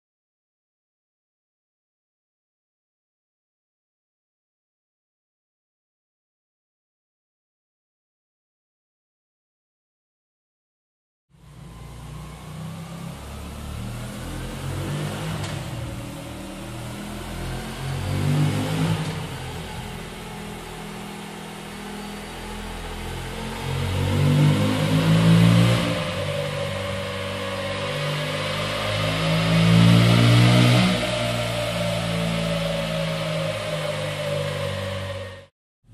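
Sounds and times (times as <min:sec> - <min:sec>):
motorcycle engine revving: 0:11.4 - 0:35.5.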